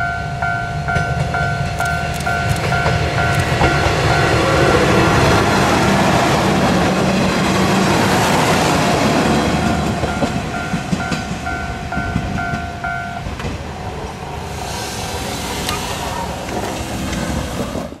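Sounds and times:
diesel railcar engine: 0.0s - 18.0s.

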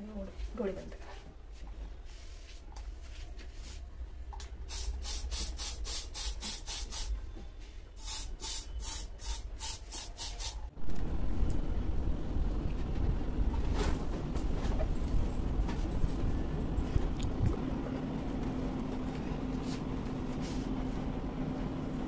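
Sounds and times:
spray bottle hissing puffs: 4.7s - 7.1s, 8.0s - 10.7s
low rushing noise: 10.7s - 18.2s.

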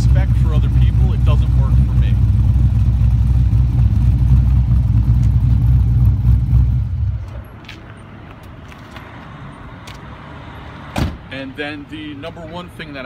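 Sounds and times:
car engine idling: 0.0s - 7.5s.

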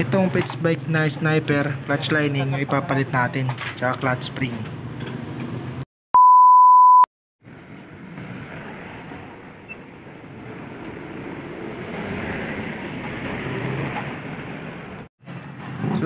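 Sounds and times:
test tone beep: 6.2s - 7.1s.

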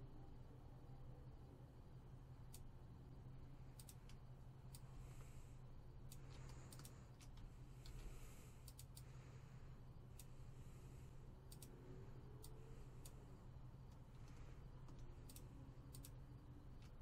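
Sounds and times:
low electrical hum: 0.0s - 17.0s
mouse and keyboard clicks: 13.9s - 16.2s.

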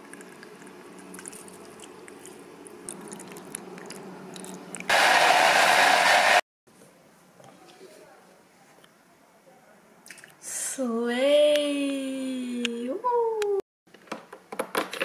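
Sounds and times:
blender running: 4.9s - 6.4s.

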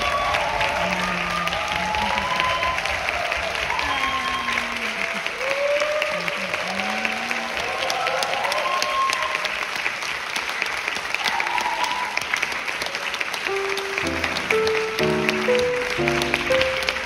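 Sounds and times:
calls from crowd: 0.0s - 9.8s
audience applauding: 0.0s - 17.0s
music with sustained notes: 13.5s - 17.0s.

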